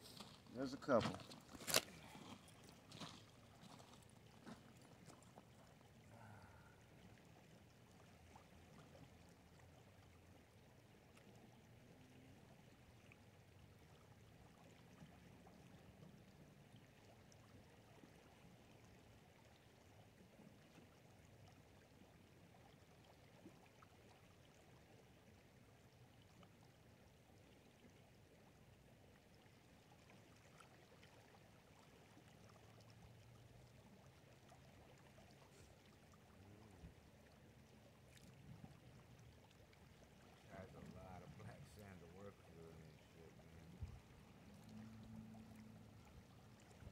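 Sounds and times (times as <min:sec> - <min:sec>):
river flowing: 0:00.0 - 0:10.3, 0:30.2 - 0:46.9.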